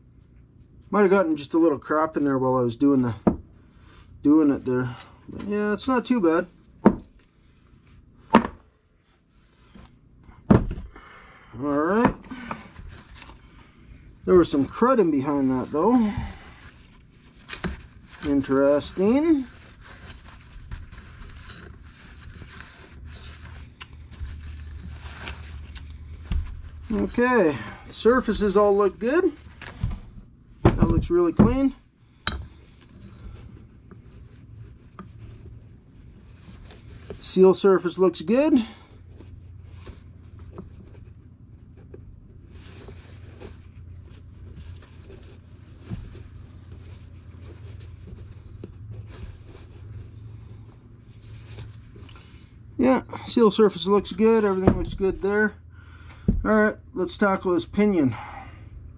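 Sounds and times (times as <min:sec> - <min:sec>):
low steady hum: 0:00.0 - 0:58.9.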